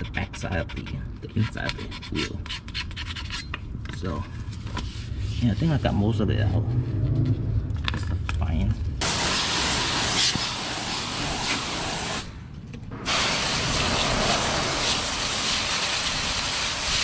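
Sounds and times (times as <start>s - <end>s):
low rumble: 6.2s - 9.0s, 12.2s - 15.4s
hissing water spray: 9.0s - 12.3s, 13.0s - 17.0s.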